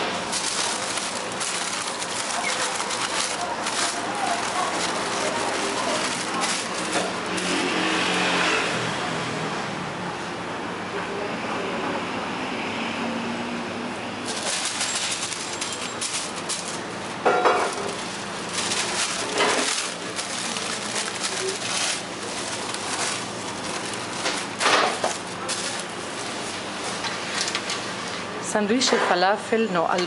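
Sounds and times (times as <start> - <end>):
paper and flatbread rustling: 0.0 - 8.7, 14.2 - 28.3
kitchen hum: 0.0 - 8.9, 13.9 - 30.0.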